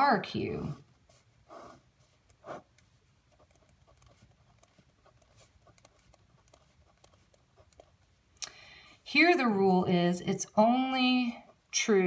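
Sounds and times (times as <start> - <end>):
pen scratching on paper: 0.6 - 8.1.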